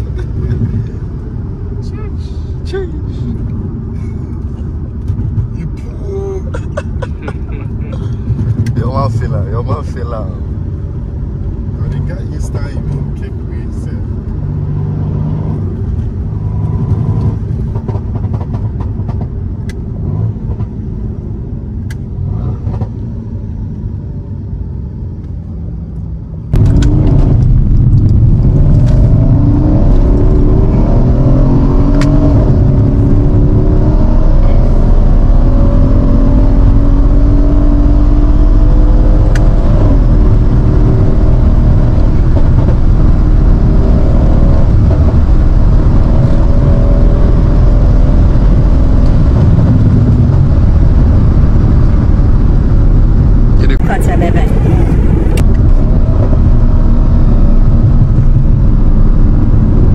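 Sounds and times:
car engine accelerating: 0.0s - 59.9s
road noise: 0.0s - 59.9s.

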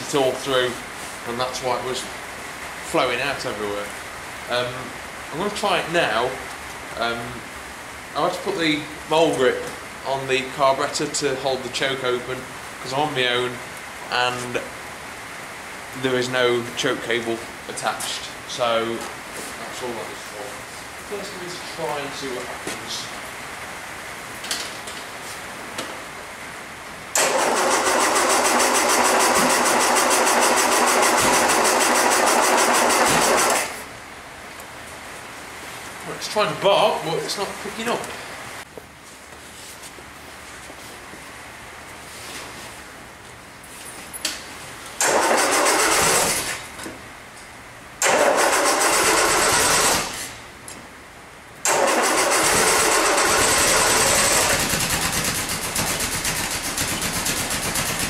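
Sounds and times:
starter motor cranking engine: 27.2s - 33.8s, 45.0s - 46.7s, 48.0s - 50.4s, 51.6s - 58.0s.

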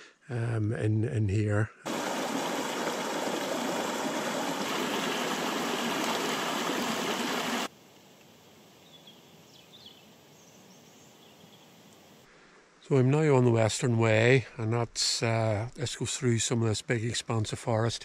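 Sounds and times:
stream rushing over stones: 1.9s - 7.7s.

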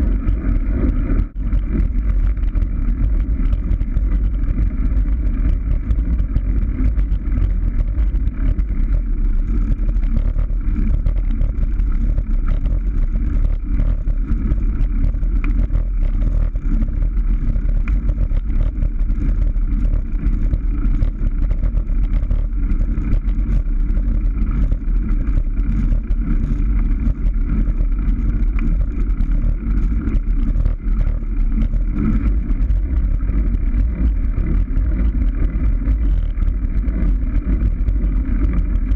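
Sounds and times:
road rumble: 0.0s - 38.9s
wind on microphone: 0.0s - 38.9s.

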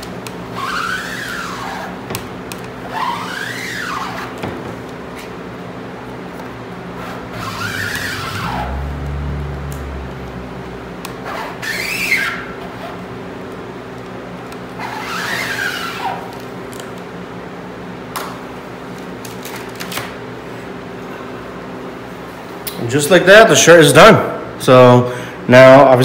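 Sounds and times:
squeegee rasping across screen: 0.5s - 2.0s, 2.8s - 4.5s, 7.0s - 8.9s, 11.2s - 13.0s, 14.8s - 16.4s
squeegee squeak: 0.5s - 4.6s, 7.0s - 8.9s, 11.2s - 13.0s, 14.8s - 16.4s.

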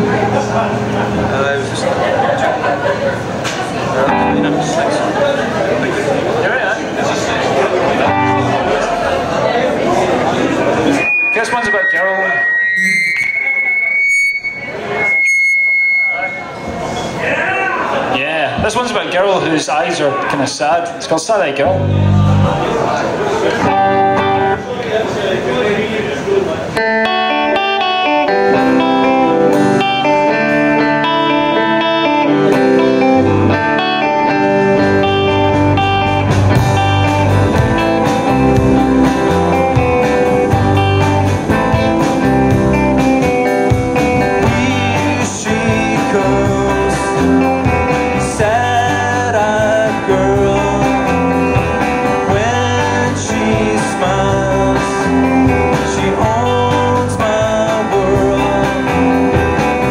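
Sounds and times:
electric guitar: 0.0s - 17.2s, 21.6s - 25.6s, 26.5s - 59.9s
rock band playing live: 0.0s - 17.2s, 17.8s - 25.2s, 26.5s - 59.9s
person singing: 44.2s - 59.9s.

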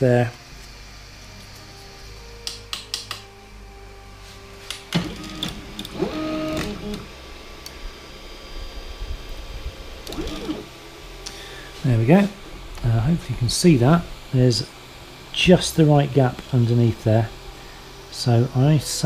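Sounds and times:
stepper motors whining: 4.9s - 8.3s, 9.3s - 10.9s.

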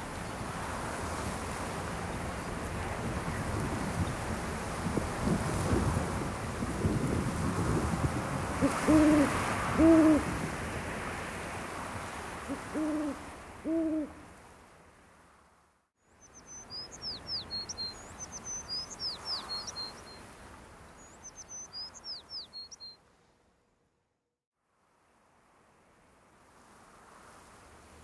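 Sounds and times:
owl hooting: 8.6s - 10.3s, 12.5s - 14.2s
songbird twittering: 16.2s - 20.2s, 21.0s - 23.0s.

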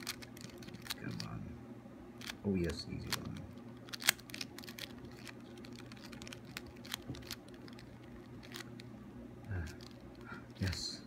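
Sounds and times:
puzzle cube plastic clicks: 0.0s - 1.3s, 3.0s - 8.9s.

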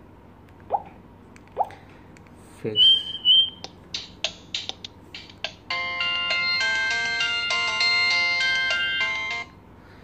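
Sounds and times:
polyphonic electronic ringtone: 5.7s - 9.5s.

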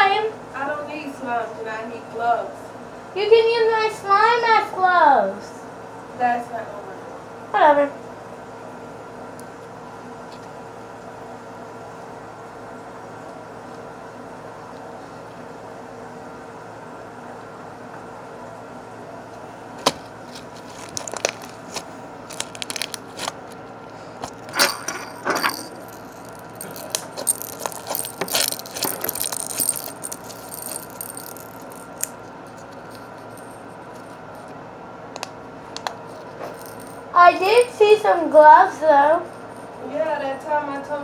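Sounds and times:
steady background hum: 0.0s - 41.0s
small objects clicking and rattling: 20.7s - 23.4s, 24.2s - 34.5s, 36.1s - 37.7s.

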